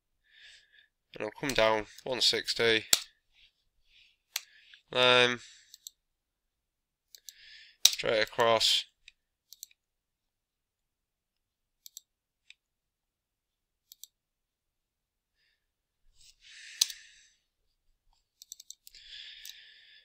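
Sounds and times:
computer mouse clicks: 5.7s - 6.0s, 7.1s - 8.0s, 9.5s - 9.8s, 11.8s - 12.6s, 13.9s - 14.2s, 18.4s - 19.6s.

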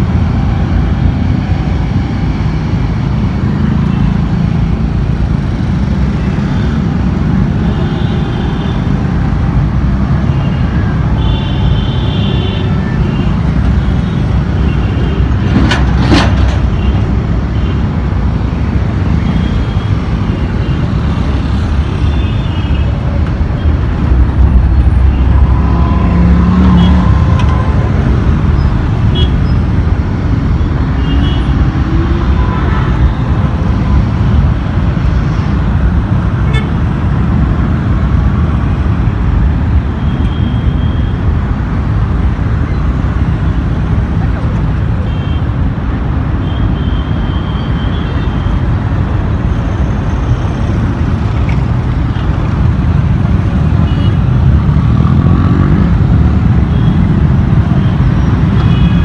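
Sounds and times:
cars passing: 0.0s - 59.0s
motorcycle engines passing: 12.8s - 38.9s, 50.8s - 59.0s.

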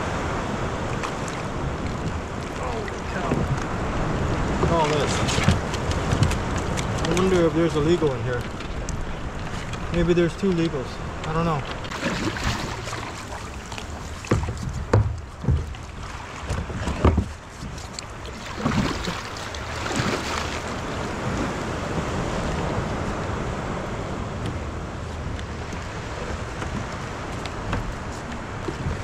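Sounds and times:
wind on microphone: 0.0s - 29.0s
dull knocks and bumps: 4.6s - 7.3s, 11.9s - 18.0s.

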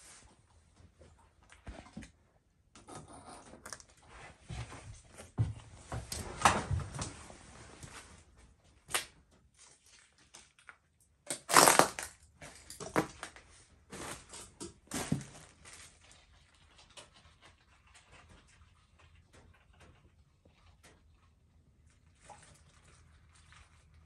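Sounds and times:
debris crunching and rustling: 11.5s - 16.0s.

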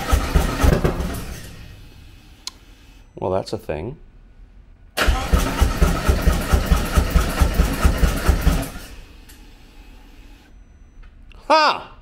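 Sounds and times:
motorcycle engine cranking on starter: 0.0s - 1.6s, 5.0s - 9.0s.

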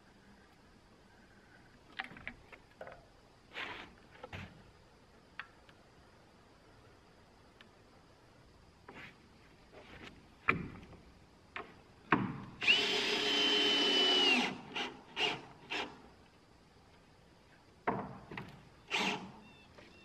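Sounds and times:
cordless drill running: 12.6s - 16.0s, 18.9s - 19.3s
sharp knocks on wood: 17.8s - 18.5s.

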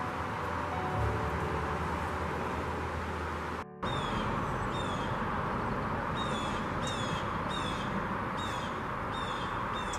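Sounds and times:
bird calling with sliding notes: 3.8s - 5.2s.

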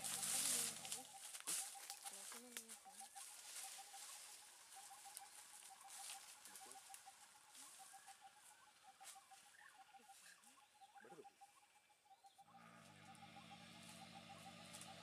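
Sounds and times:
rustling of dry brush: 0.0s - 6.9s.

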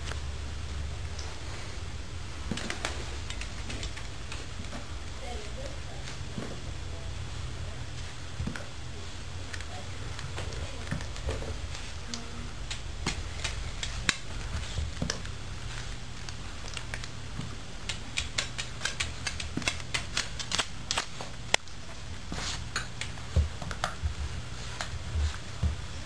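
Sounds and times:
steady low hum: 0.0s - 26.0s
dog claws clicking on tile: 2.5s - 4.4s, 12.7s - 14.3s, 17.8s - 21.8s.

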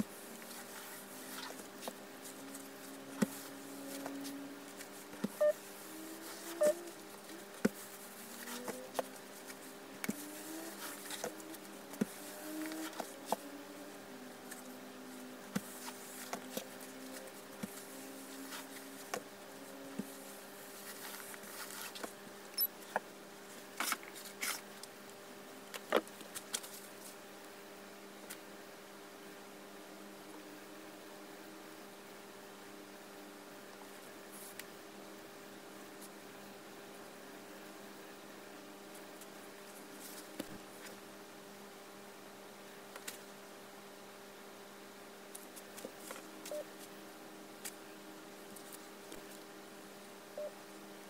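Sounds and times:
faint wavering buzz: 0.0s - 22.8s
steady low hum: 0.0s - 51.0s.

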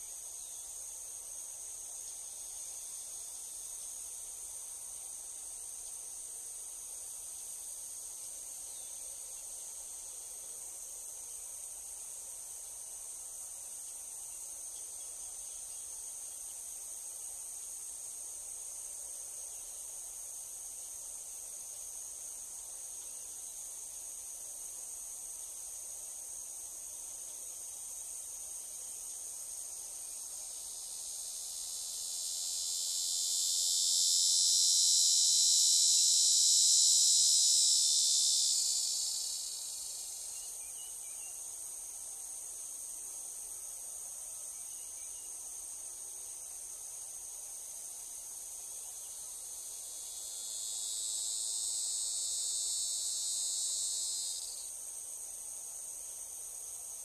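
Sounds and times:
high-pitched insect chorus: 0.0s - 57.0s
louder insect buzz: 30.7s - 40.5s, 49.3s - 54.7s.

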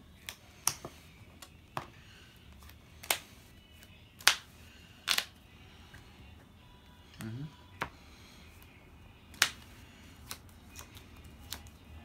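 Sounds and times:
trading cards clicking: 2.6s - 5.3s, 9.3s - 11.8s.

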